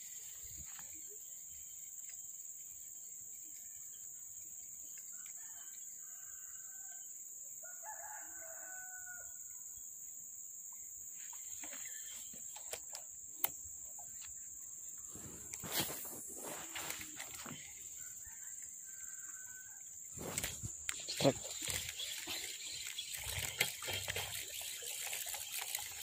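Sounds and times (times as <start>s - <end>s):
rooster crowing: 7.6s - 9.4s
steady high hiss: 13.2s - 18.1s.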